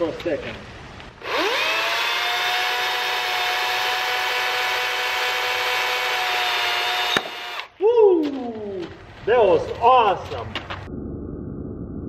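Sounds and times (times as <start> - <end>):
electric chainsaw whining: 1.2 - 7.7.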